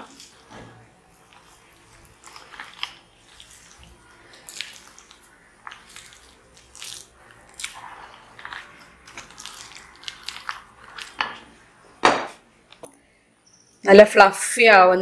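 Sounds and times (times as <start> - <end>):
spoon scraping batter in bowl: 0.0 - 11.6.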